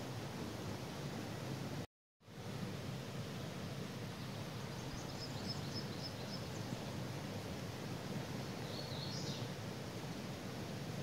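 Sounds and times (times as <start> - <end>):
creek water rushing: 0.0 - 11.0
songbird singing: 4.2 - 7.0, 8.3 - 9.5.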